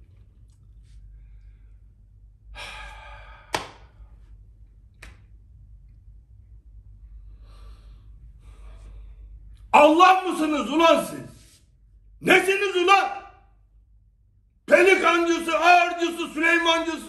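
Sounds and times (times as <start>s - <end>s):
faint breathing: 0.8s - 4.4s, 7.0s - 9.6s.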